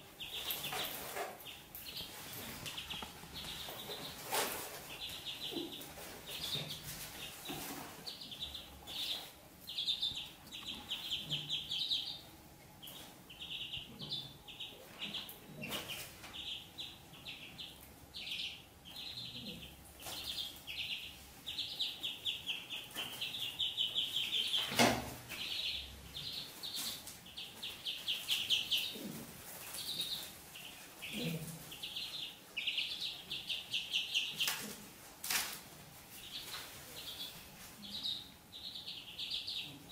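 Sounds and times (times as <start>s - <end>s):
ducklings peeping: 0.0s - 39.9s.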